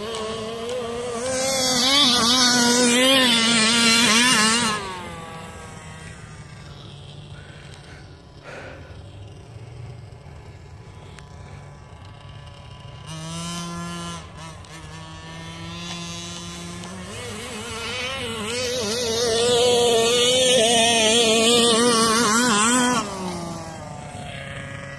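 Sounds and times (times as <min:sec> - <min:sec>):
small two-stroke engine revving: 0:00.0 - 0:24.9.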